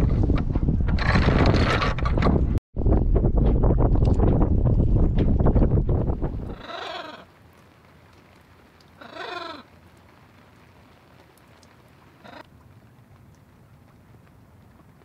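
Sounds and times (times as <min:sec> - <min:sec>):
rain hiss: 0:06.5 - 0:15.0.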